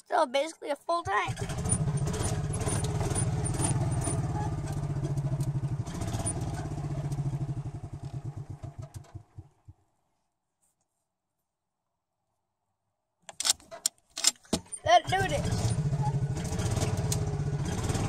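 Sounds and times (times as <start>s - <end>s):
small gasoline engine running: 1.0s - 9.8s, 14.9s - 18.0s.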